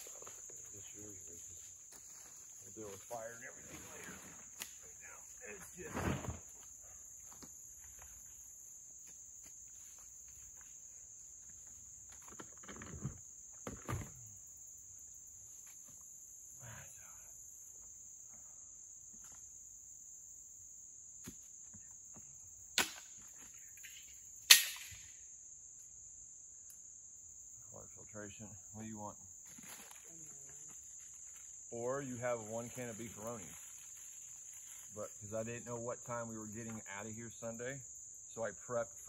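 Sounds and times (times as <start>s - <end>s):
insects droning: 0.0s - 39.0s
camp gear rustling and clattering: 5.4s - 8.6s, 9.3s - 14.3s, 29.4s - 31.7s.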